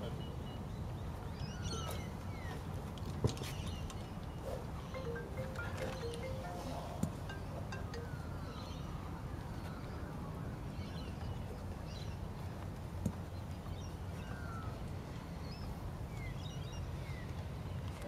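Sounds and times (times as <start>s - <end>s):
birds chirping: 3.6s - 9.0s.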